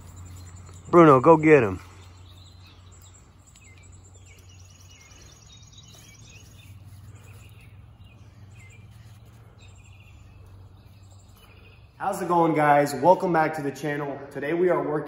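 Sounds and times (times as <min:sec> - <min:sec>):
birds chirping: 0:00.0 - 0:15.0
low outdoor hum: 0:00.0 - 0:15.0.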